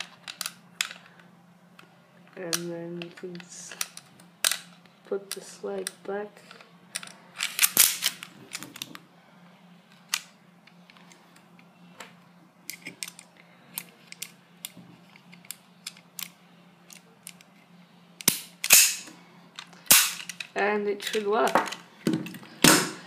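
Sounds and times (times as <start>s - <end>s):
small parts clicking: 12.7s - 17.5s
sharp mechanical snap: 18.2s - 19.1s, 19.8s - 20.4s.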